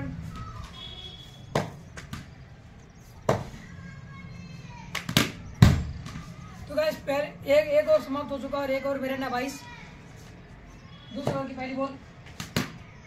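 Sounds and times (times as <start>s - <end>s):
cricket bat striking ball: 1.5s - 2.4s, 3.3s - 3.6s, 4.9s - 6.3s, 12.3s - 12.8s.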